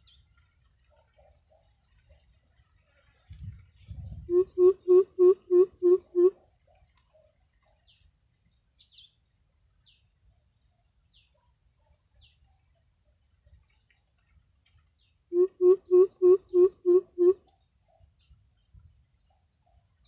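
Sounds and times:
high insect drone: 0:00.0 - 0:20.0
faint bird chirps: 0:00.9 - 0:09.2, 0:10.9 - 0:20.0
bird deep hooting call: 0:04.3 - 0:06.4, 0:15.3 - 0:17.4.

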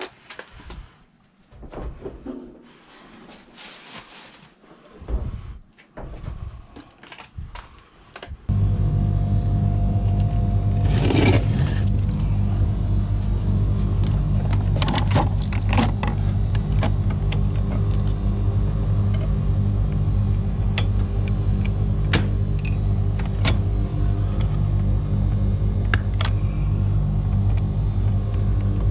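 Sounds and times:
music with low bass line: 0:08.5 - 0:28.9.

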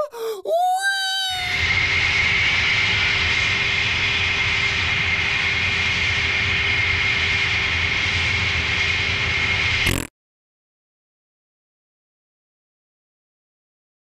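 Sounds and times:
jet engines running: 0:01.4 - 0:10.1.

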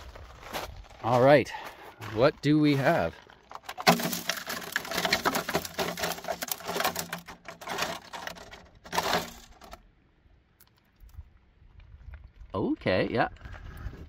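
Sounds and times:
rapid clicking and rattling: 0:03.6 - 0:09.8.

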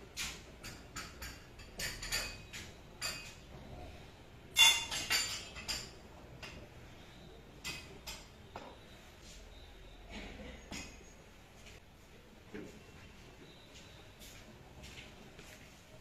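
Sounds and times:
china and cutlery clinking: 0:00.2 - 0:03.5, 0:04.5 - 0:06.7.

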